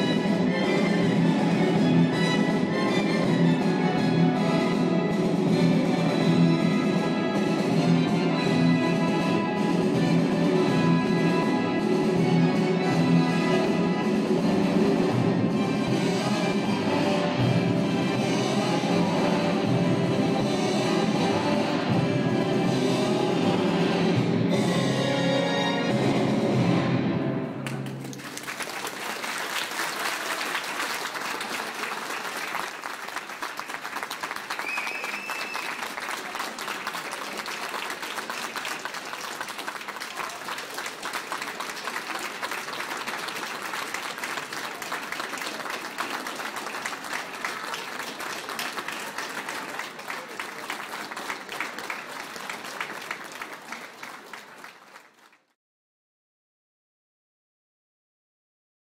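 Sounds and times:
orchestral music: 0:00.0 - 0:28.4
audience applauding: 0:27.6 - 0:55.6.

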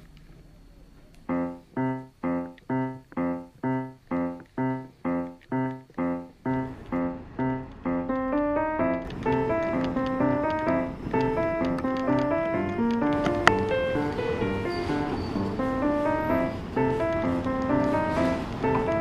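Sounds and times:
keyboard melody: 0:01.2 - 0:19.0
repeated keyboard chord: 0:01.3 - 0:19.0.

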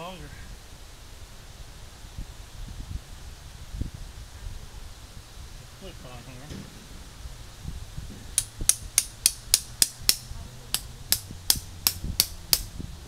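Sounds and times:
hammer striking tent stake: 0:08.2 - 0:12.7.

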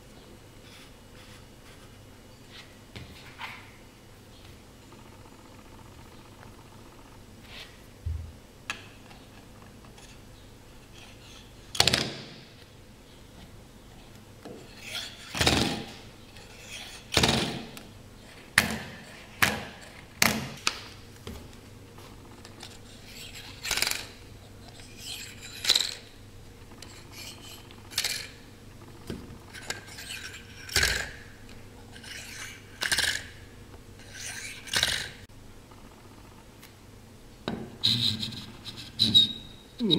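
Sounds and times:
magnets scraping and rubbing: 0:14.6 - 0:15.4, 0:16.3 - 0:17.2, 0:22.6 - 0:26.1, 0:26.8 - 0:28.4, 0:29.6 - 0:31.2, 0:31.9 - 0:33.3, 0:34.0 - 0:35.1.

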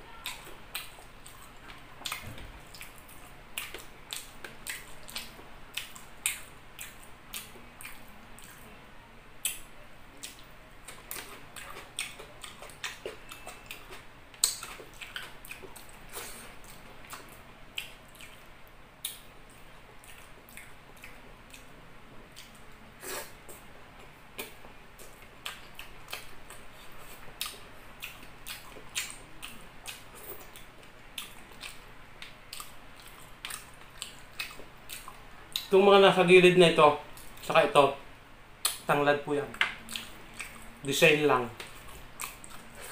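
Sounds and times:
wet chewing smacks: 0:00.2 - 0:08.6, 0:10.2 - 0:21.7, 0:24.4 - 0:35.7, 0:39.8 - 0:40.7, 0:41.6 - 0:42.9.

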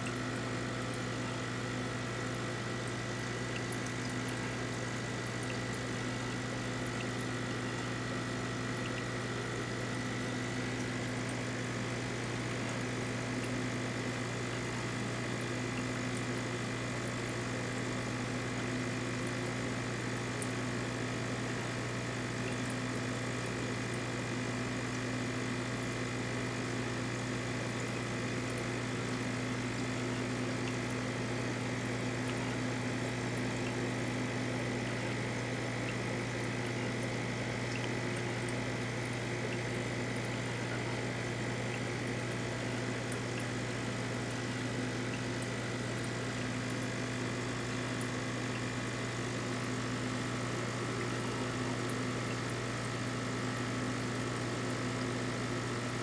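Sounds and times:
aquarium pump humming: 0:00.0 - 0:56.0.

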